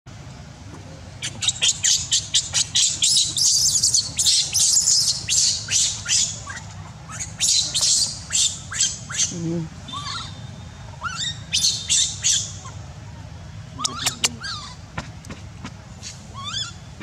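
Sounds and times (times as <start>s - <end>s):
baby monkey screaming: 1.2s - 12.8s, 13.7s - 14.8s, 16.0s - 16.9s.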